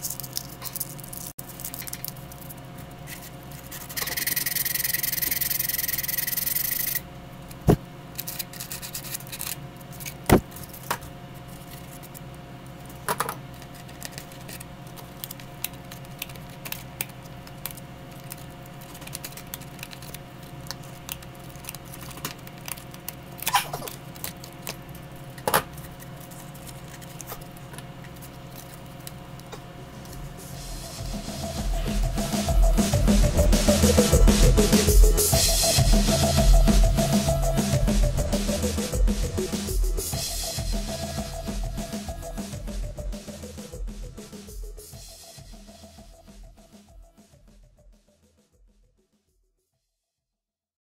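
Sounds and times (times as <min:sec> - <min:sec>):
faint electrical hum: 0:00.0 - 0:47.8
tools clicking and scraping paper: 0:08.2 - 0:12.2, 0:12.8 - 0:30.2.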